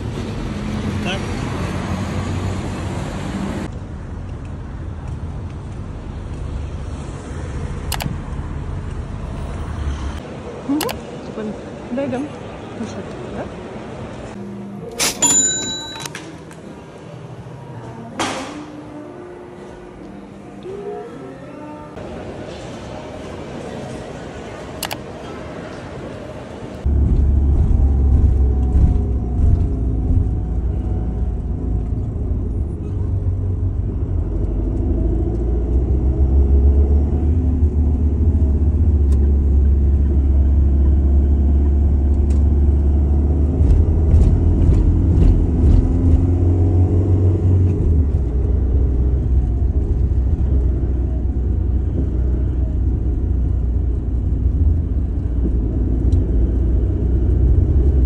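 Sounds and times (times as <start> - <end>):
car interior road and engine rumble: 26.8 - 58.0.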